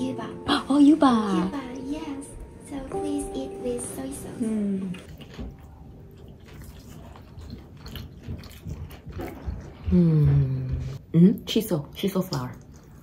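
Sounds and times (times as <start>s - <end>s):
person chewing food: 4.8s - 11.0s.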